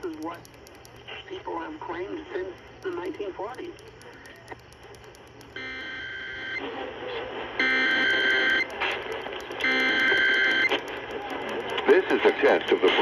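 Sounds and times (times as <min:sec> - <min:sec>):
screeching digital data bursts: 0:07.6 - 0:12.1.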